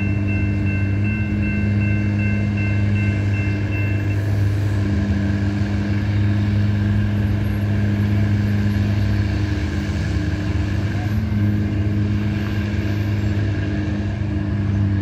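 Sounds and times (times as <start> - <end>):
road traffic: 0.0 - 15.0
vehicle engine idling: 0.0 - 15.0.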